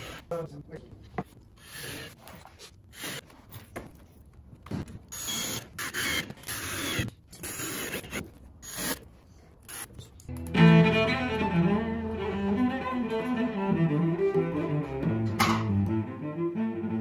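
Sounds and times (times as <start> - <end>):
cordless drill driving screws: 5.1 - 9.0.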